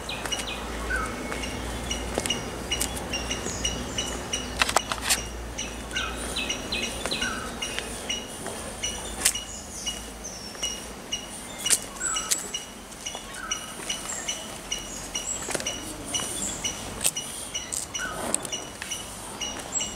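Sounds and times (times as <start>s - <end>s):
birds chirping: 0.0s - 19.9s
sharp clicks: 4.5s - 5.3s.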